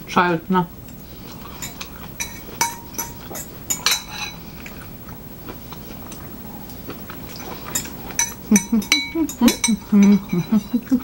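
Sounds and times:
spoon clinking on ceramic bowl: 1.6s - 4.4s, 7.8s - 10.7s.

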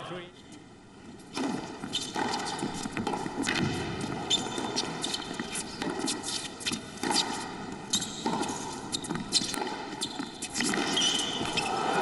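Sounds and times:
tennis ball struck by rackets: 1.3s - 7.5s, 10.5s - 11.5s
tennis ball bouncing on court: 1.3s - 11.7s.

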